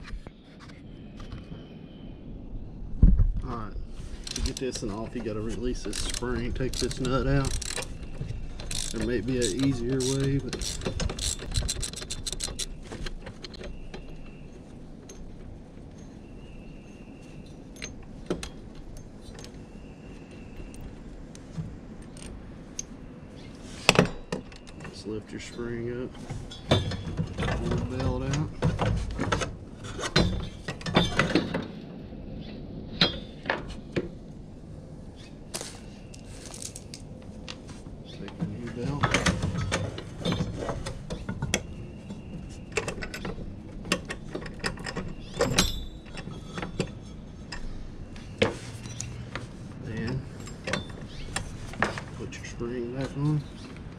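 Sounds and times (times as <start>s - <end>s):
ratchet wrench clicking: 5.9s - 8.0s, 8.6s - 12.7s.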